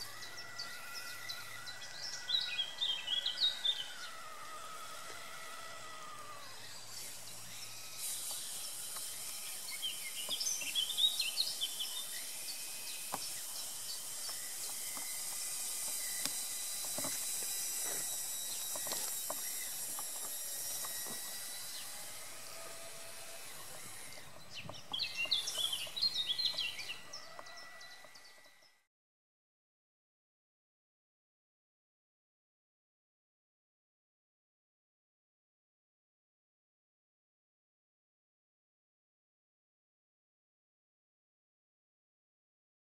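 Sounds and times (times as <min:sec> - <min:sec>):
songbirds chirping: 0:00.0 - 0:28.8.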